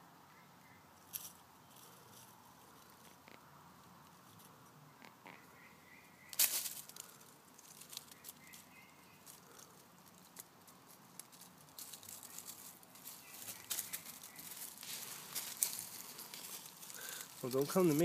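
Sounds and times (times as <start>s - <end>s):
dry leaves rustling and crackling: 6.2s - 18.0s.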